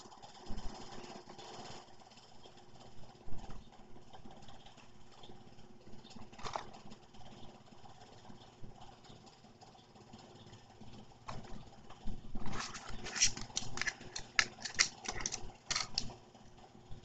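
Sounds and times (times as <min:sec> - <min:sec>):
plastic packaging crackling: 0:12.4 - 0:16.1.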